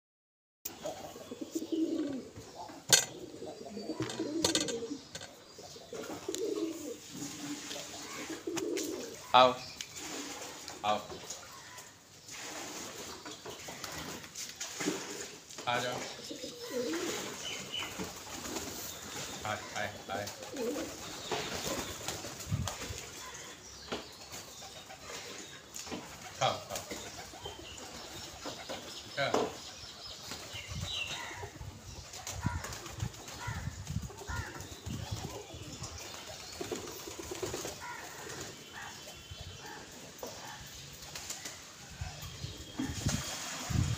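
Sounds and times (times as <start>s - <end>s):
pigeons cooing: 0.7s - 9.3s, 15.0s - 43.8s
pigeons flapping wings: 17.0s - 19.4s, 20.2s - 23.4s, 32.1s - 33.6s, 34.4s - 38.6s, 41.0s - 41.7s.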